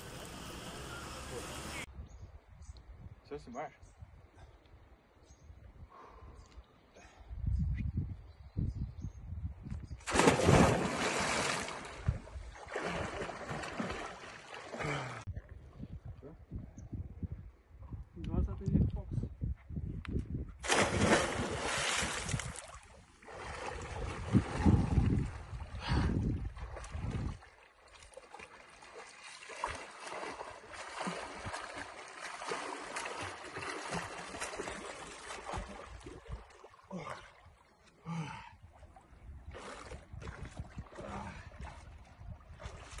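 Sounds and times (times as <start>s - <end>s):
loud splash into water: 10.1s - 12.0s, 20.6s - 22.5s
swimming strokes splashing: 10.1s - 15.2s, 20.6s - 24.2s, 26.7s - 37.5s.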